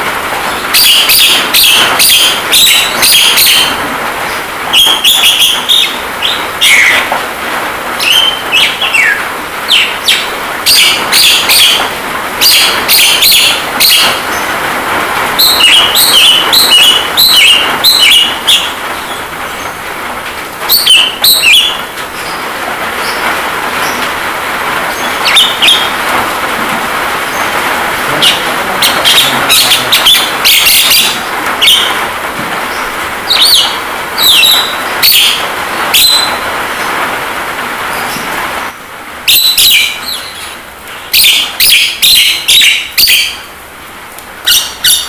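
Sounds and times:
rain hissing: 0.0s - 45.0s
myna chattering: 28.0s - 31.3s.

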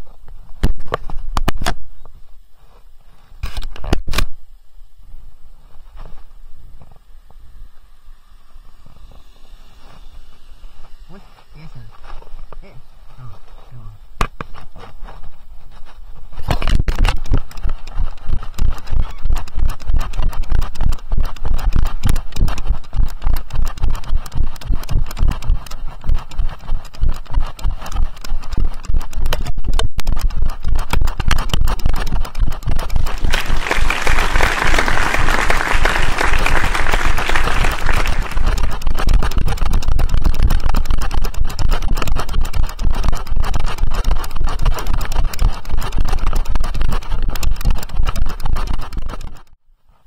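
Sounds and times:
horse hoofbeats: 17.2s - 49.4s.

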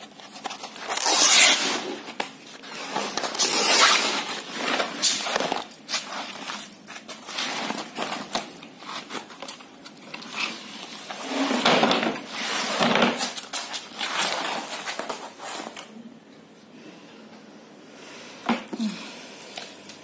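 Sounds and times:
canvas tearing: 0.0s - 2.1s.

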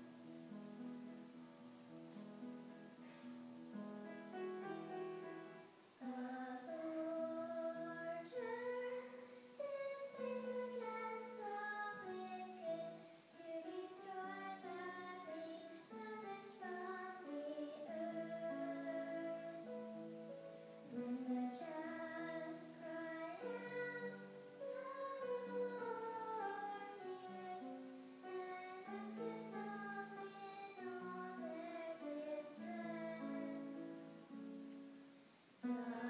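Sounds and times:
woman singing slow melody: 6.0s - 20.0s, 20.9s - 33.9s, 35.6s - 36.0s.

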